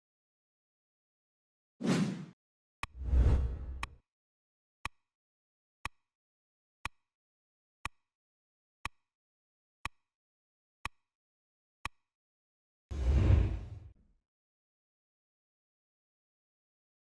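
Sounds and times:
timer ticks: 5.8 - 6.1, 6.8 - 7.1, 7.8 - 8.1, 8.8 - 9.1, 9.8 - 10.1, 10.8 - 11.1, 11.8 - 12.1.

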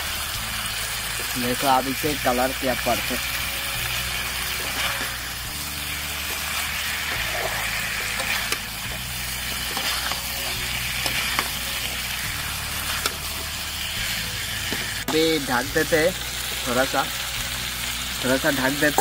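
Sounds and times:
meat sizzling in a wok: 0.0 - 19.0
spatula scraping and tapping pan: 9.6 - 10.3.

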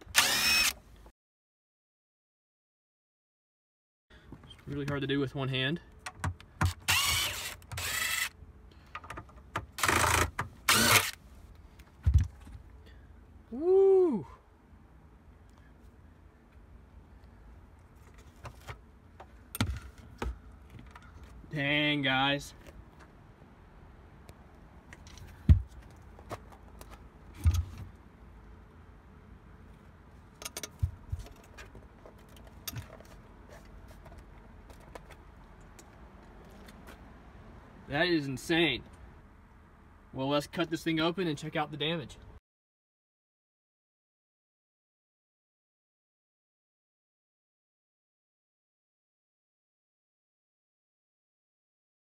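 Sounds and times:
cordless drill whirring: 0.0 - 0.8, 6.7 - 8.4, 9.8 - 11.2
dull thump: 12.0 - 12.6, 25.4 - 25.8.

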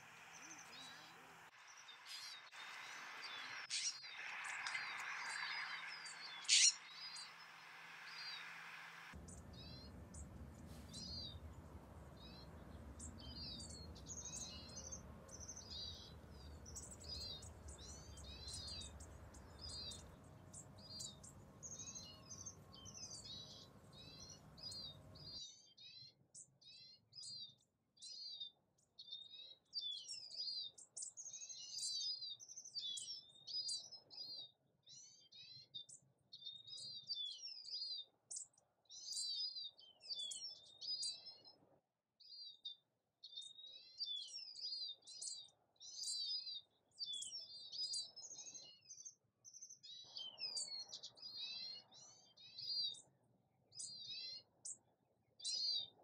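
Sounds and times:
small songbirds chirping: 0.0 - 56.0
low background rumble: 9.2 - 25.4.

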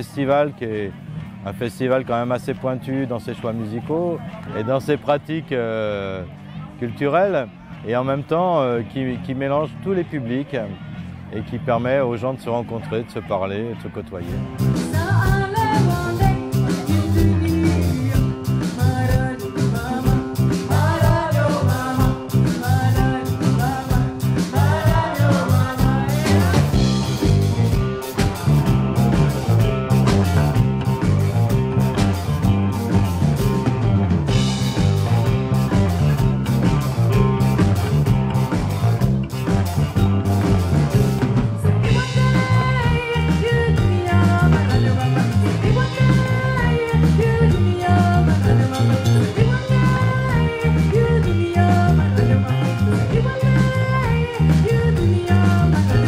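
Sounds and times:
live rock band: 14.2 - 56.0
woman singing: 14.8 - 26.8, 42.0 - 56.0.

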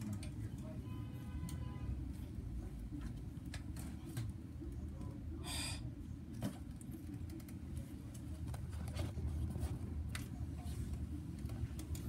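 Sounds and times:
ceiling fans humming: 0.0 - 12.0.

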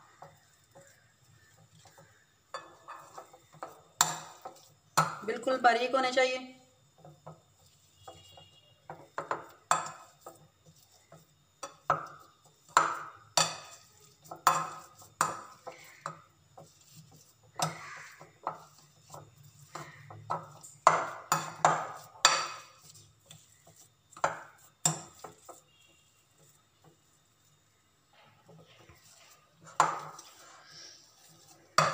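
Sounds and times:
potatoes squashing: 11.8 - 26.6.

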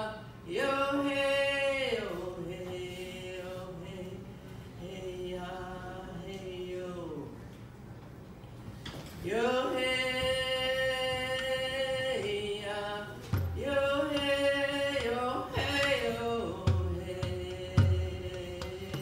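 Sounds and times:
woman singing chant-like song: 9.3 - 19.0.

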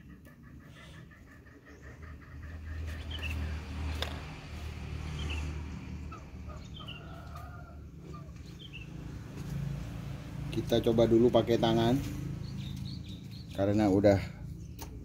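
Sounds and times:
high bird chirps: 0.0 - 3.6, 11.8 - 13.9.

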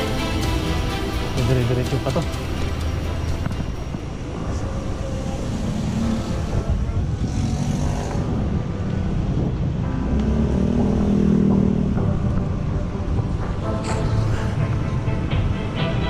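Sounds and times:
road rumble: 0.0 - 16.0
wind buffeting microphone: 2.5 - 10.1.

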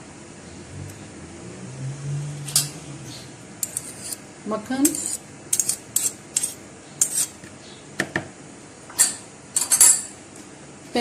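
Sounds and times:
spoon scraping plastic bowl: 3.6 - 4.2, 4.8 - 7.4.

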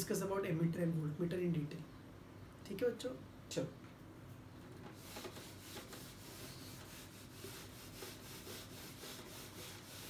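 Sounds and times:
duster rubbing on whiteboard: 4.8 - 10.0.

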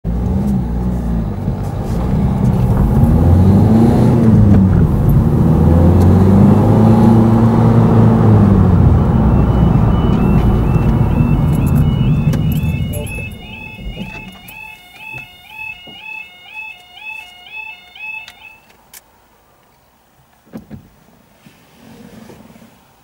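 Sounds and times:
car engine accelerating: 0.0 - 15.3
tyre and road noise: 0.0 - 23.0
faint two-tone warning alarm: 9.1 - 18.7.

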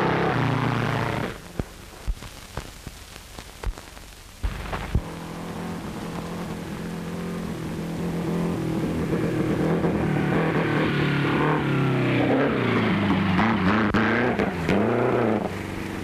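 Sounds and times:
race car engine: 0.0 - 1.6, 5.0 - 16.0
film soundtrack crackle and pops: 0.0 - 10.8.

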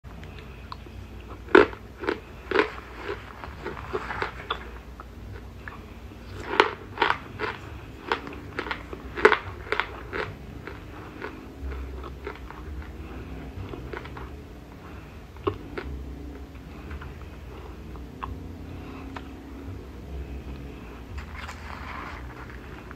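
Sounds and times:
crunching and chewing: 0.1 - 22.9.

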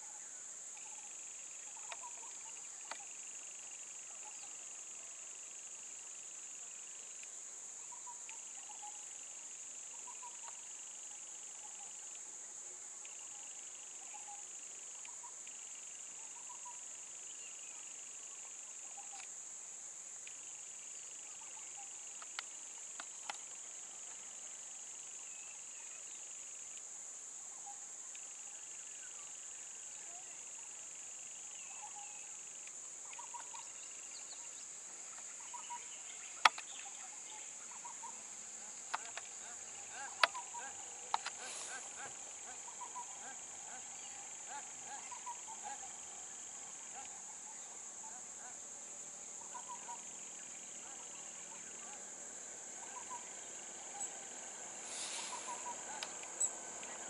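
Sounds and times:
lower insect trill: 0.0 - 57.0
high-pitched insect drone: 27.6 - 48.4, 52.8 - 57.0
sharp clicks: 41.1 - 41.8
faint short chirps: 54.9 - 56.5.

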